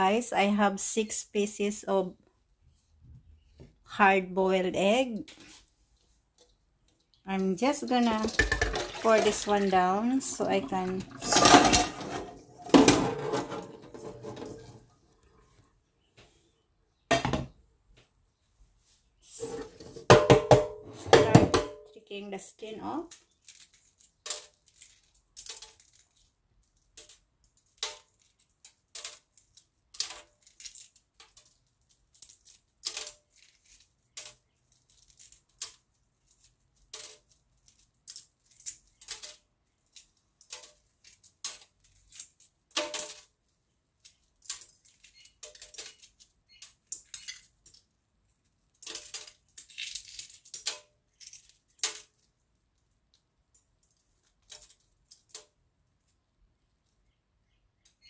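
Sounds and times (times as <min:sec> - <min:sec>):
shell pieces dropping into sink: 0:07.9 - 0:09.7, 0:10.4 - 0:14.7, 0:23.2 - 0:43.3
eggshell cracking and peeling: 0:23.1 - 0:43.3, 0:48.6 - 0:52.4.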